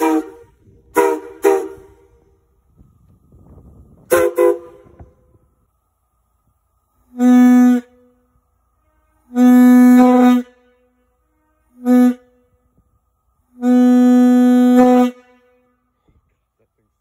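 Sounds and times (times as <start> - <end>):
locomotive whistle blasts: 0.0 - 2.5, 4.0 - 5.5, 7.0 - 16.0.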